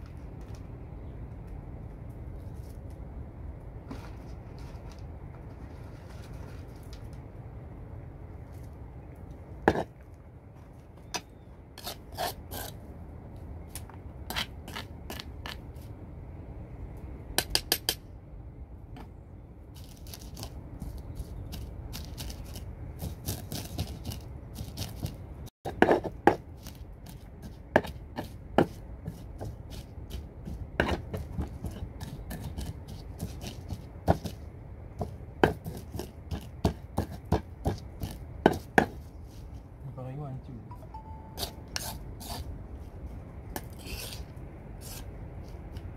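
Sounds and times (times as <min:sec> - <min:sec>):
pestle crushing and scraping: 0:13.7 - 0:15.8, 0:19.8 - 0:39.6, 0:41.4 - 0:45.9.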